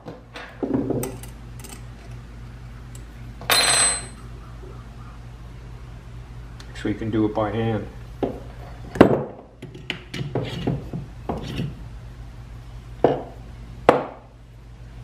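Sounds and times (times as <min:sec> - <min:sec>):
metal knocks and clinks: 0:03.5 - 0:04.2.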